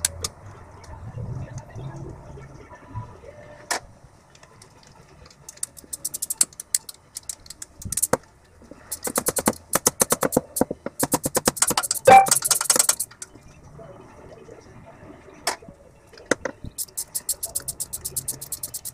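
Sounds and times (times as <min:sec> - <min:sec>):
ratchet wrench clicking: 0:05.6 - 0:08.2, 0:08.9 - 0:13.1, 0:16.8 - 0:18.9.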